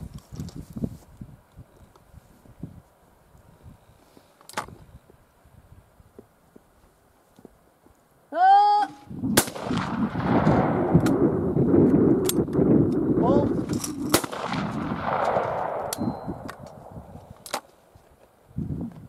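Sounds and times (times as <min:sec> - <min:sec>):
shotgun shot: 0:09.3 - 0:11.2, 0:13.9 - 0:17.0
sharp clicks: 0:15.1 - 0:17.7.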